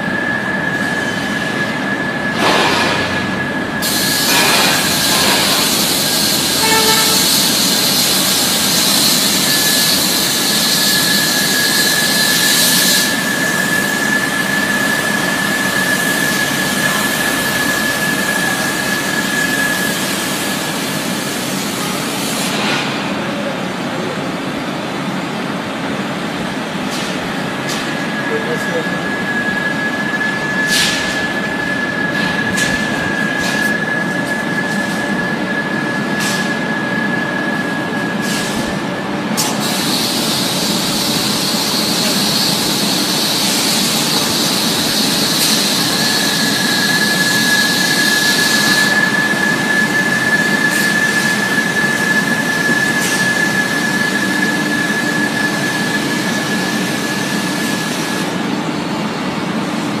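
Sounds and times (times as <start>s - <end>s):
high whistling squeal: 0.0s - 2.4s, 3.1s - 22.4s, 27.7s - 38.6s, 39.6s - 58.4s
high buzz: 3.8s - 20.1s.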